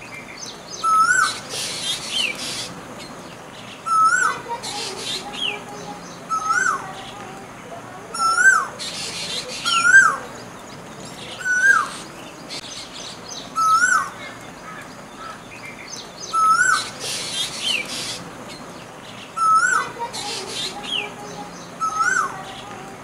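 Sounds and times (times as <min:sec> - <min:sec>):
koel calling: 0:03.9 - 0:10.5, 0:13.6 - 0:15.5, 0:16.3 - 0:18.2, 0:19.4 - 0:23.0
high bird chirps: 0:08.2 - 0:22.9.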